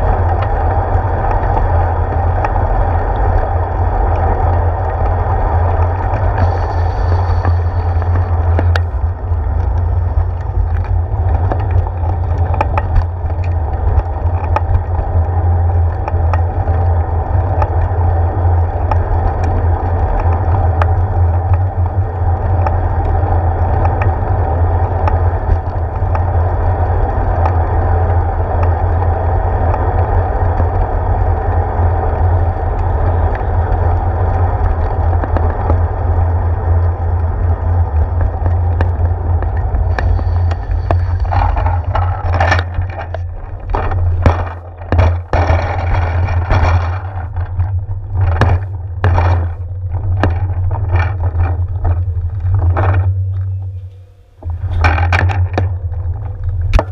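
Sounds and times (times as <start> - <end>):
bicycle tyres rumbling on pavement: 0.0 - 56.9.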